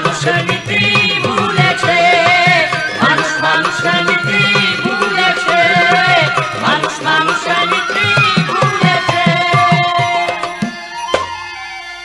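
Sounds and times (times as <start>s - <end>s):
steady drum rhythm: 0.0s - 11.4s
sliding folk melody: 0.0s - 12.0s.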